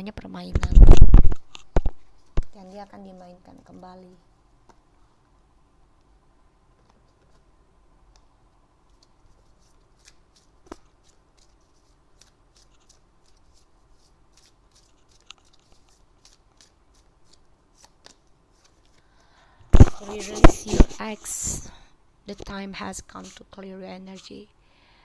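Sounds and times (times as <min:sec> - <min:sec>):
cards being shuffled: 0:08.1 - 0:19.1, 0:19.8 - 0:21.0.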